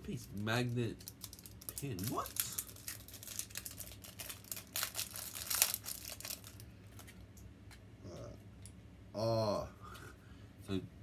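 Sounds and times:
packaging crinkling and tearing: 0.2 - 7.2.

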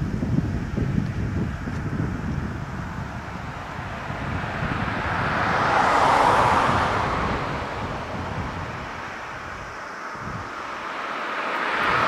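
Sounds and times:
wind rumble on microphone: 0.0 - 12.0
jet engine roar at takeoff: 0.2 - 12.0.

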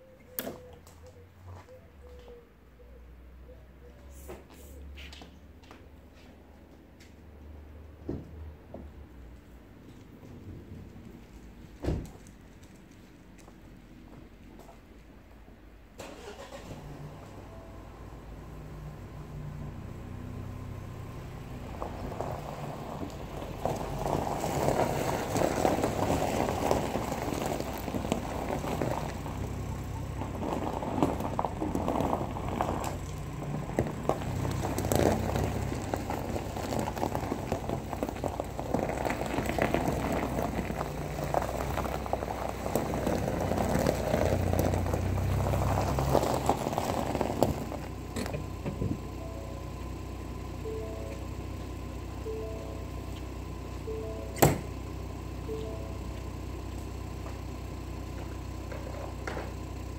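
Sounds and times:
engine idling: 15.8 - 59.9
dense crackling noise: 21.1 - 49.1.

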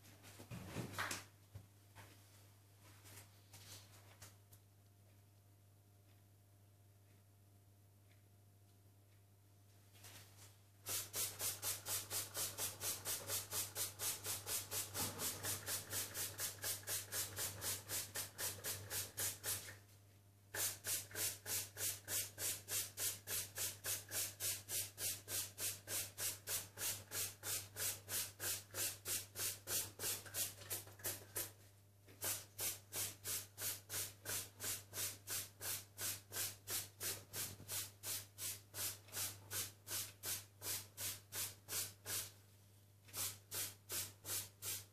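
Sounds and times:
spray bottle squirts: 10.9 - 19.7, 20.6 - 31.5, 32.2 - 42.3, 43.1 - 44.9.

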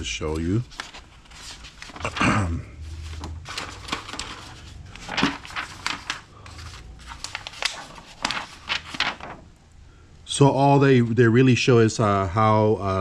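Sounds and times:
paper pages rustling and crinkling: 0.0 - 9.5.

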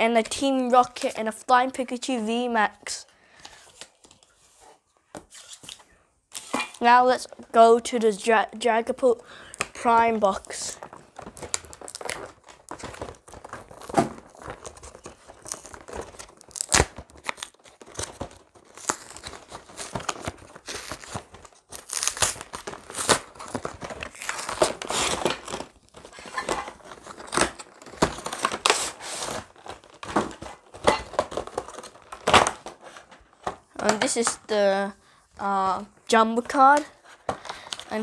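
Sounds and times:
packaging crinkling and rustling: 9.3 - 34.7, 35.4 - 38.0
cardboard box tearing: 10.8 - 33.1.

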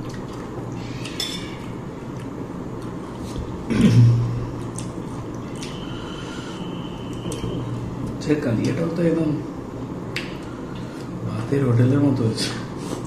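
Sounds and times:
chewing food: 0.0 - 3.5, 4.5 - 5.8
low hum: 0.0 - 12.0.

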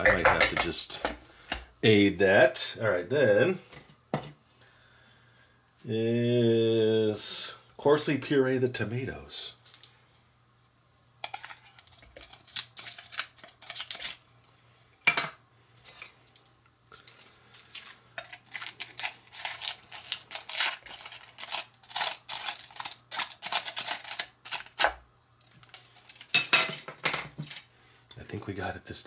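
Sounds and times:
wooden spoon scraping foil tin: 11.2 - 14.2, 16.9 - 24.9.

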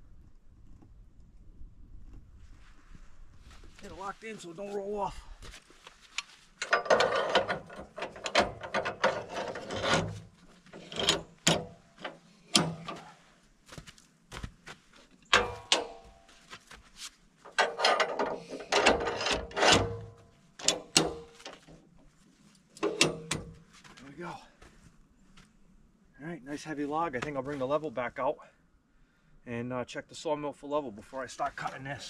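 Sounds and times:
metal clanking and ratcheting: 6.6 - 13.0, 15.3 - 16.1, 17.5 - 21.8, 22.8 - 23.6.

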